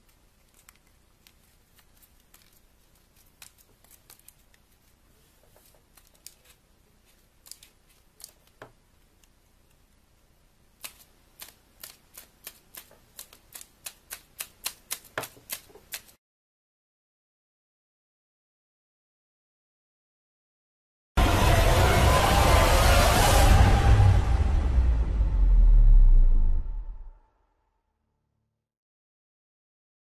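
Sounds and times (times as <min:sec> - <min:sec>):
sharp paper snaps: 0:00.0 - 0:05.0, 0:05.6 - 0:08.6, 0:10.8 - 0:16.2
paper crinkling: 0:00.0 - 0:09.8, 0:10.8 - 0:16.2.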